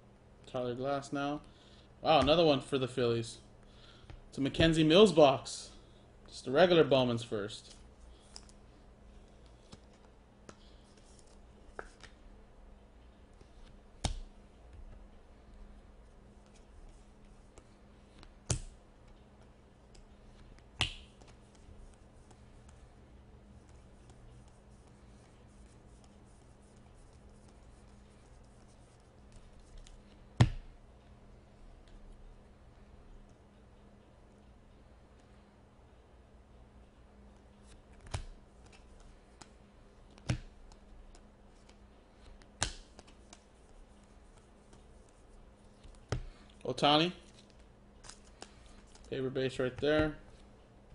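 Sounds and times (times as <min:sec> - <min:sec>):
cards rustling: 0:07.6 - 0:12.2, 0:37.6 - 0:46.6, 0:47.2 - 0:50.5
sharp card snaps: 0:42.5 - 0:43.2.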